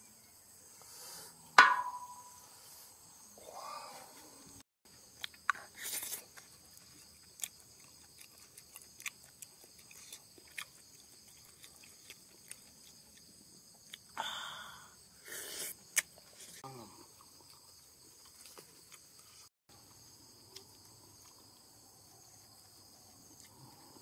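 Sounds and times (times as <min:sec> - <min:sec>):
high-pitched insect chorus: 0:00.0 - 0:04.6, 0:13.1 - 0:18.5.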